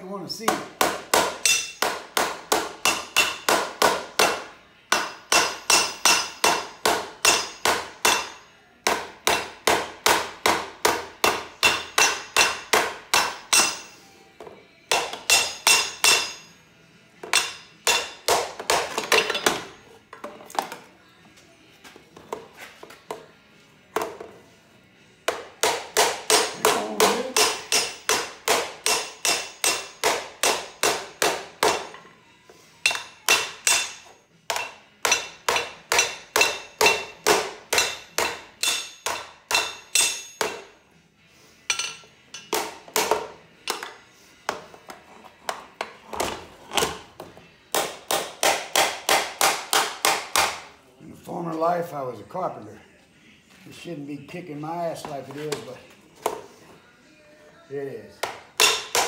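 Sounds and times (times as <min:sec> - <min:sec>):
hammer striking sheet metal: 0:00.8 - 0:13.9, 0:14.9 - 0:16.5, 0:25.3 - 0:31.9.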